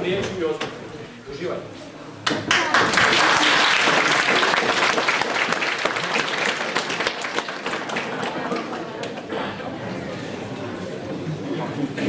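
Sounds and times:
audience applauding: 2.5s - 9.3s.

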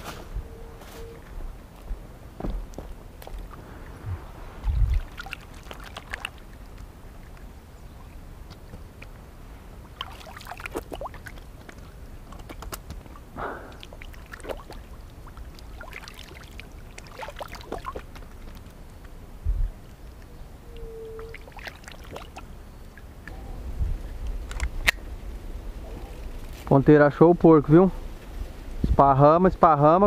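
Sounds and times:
water splashing and sloshing: 1.0s - 23.4s
dull thump: 2.4s - 2.9s.

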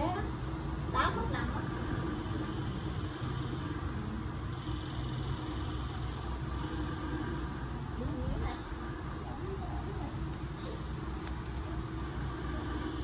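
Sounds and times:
faint hum: 0.0s - 13.0s
low mechanical rumble: 0.0s - 13.0s
faint sharp clicks: 8.3s - 12.0s.

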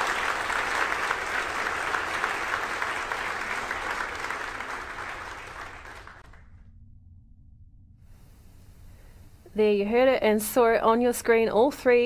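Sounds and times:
group of people applauding: 0.0s - 6.4s.

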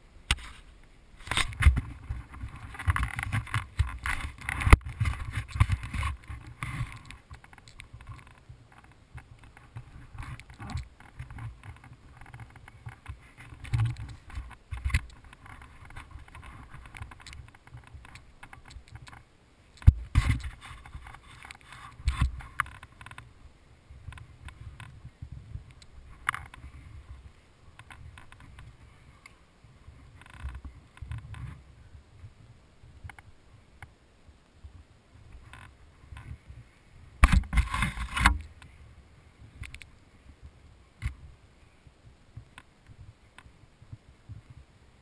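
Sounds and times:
camera handling rubbing and bumps: 0.3s - 19.2s, 19.8s - 23.3s, 24.1s - 28.8s, 30.1s - 31.6s, 37.2s - 38.7s.

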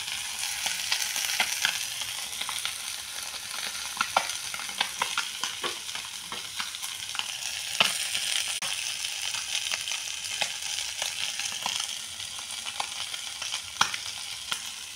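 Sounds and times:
fish sizzling in hot oil: 0.0s - 14.9s.

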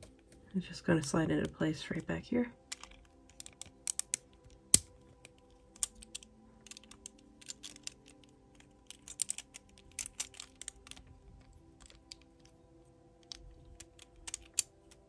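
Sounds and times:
plastic puzzle pieces clicking: 2.7s - 12.6s, 13.2s - 15.0s.

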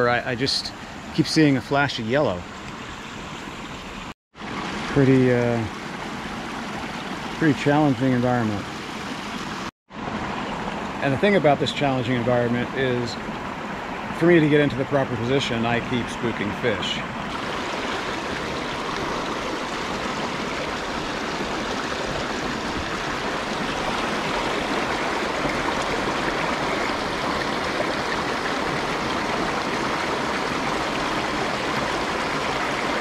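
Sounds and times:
creek water running: 0.0s - 33.0s.

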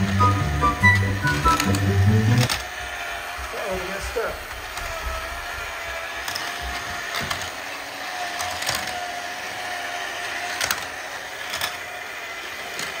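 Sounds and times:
plastic engines rolling on track: 0.0s - 13.0s
toy train lift whirring: 0.0s - 13.0s
sharp plastic clicks: 8.3s - 9.1s, 10.4s - 11.9s.

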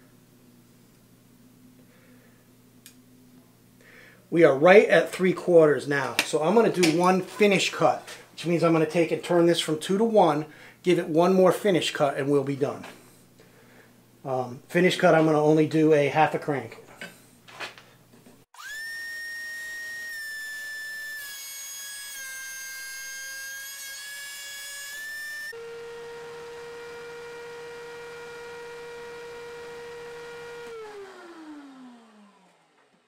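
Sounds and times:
thickness planer whining: 18.6s - 33.0s.

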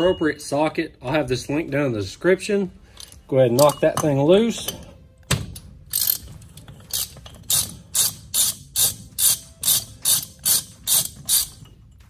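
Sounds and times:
ratchet wrench clicking: 5.9s - 11.7s.

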